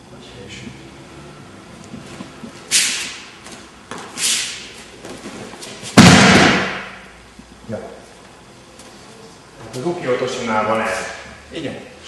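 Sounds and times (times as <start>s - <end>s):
body thudding onto mat: 5.0s - 6.9s.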